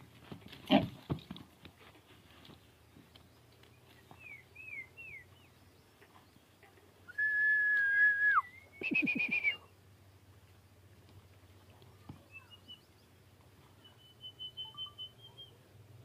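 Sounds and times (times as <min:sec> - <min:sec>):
person whistling: 0:07.1 - 0:09.6.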